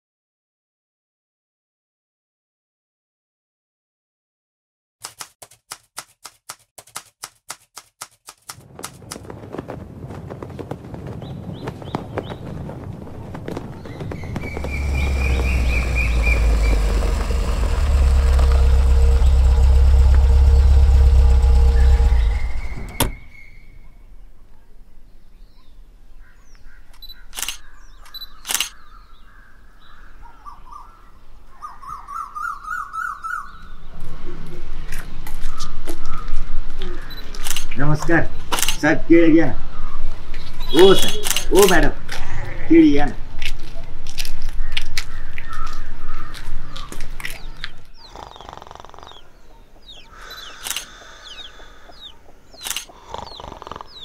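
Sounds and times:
typewriter key clicks: 0:05.0 - 0:09.0
birds chirping: 0:11.1 - 0:54.0
car engine rumbling: 0:13.0 - 0:23.5.

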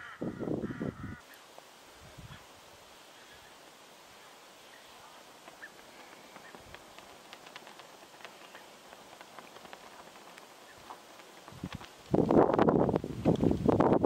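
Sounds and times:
low steady hiss: 0:00.0 - 0:14.0
small ticks: 0:03.3 - 0:13.6.

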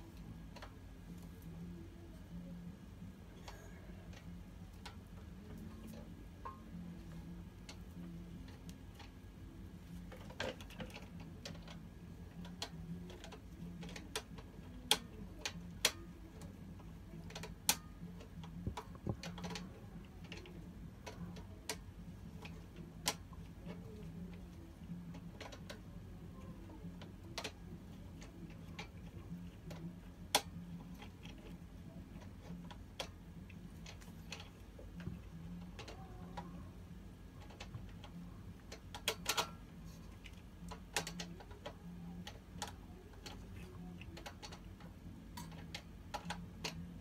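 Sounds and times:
steady low hum: 0:00.0 - 0:47.0
pliers clicking on metal: 0:37.4 - 0:44.7.

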